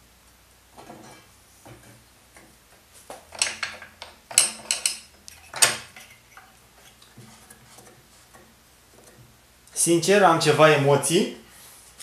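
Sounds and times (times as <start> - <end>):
metal bar clanking on saw table: 3.3 - 6.2.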